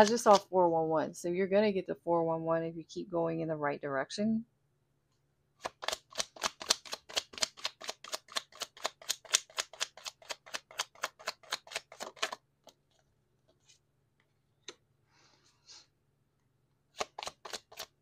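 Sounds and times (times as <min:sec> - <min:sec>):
cards being shuffled: 0:00.0 - 0:00.5, 0:05.6 - 0:13.8, 0:16.9 - 0:18.0.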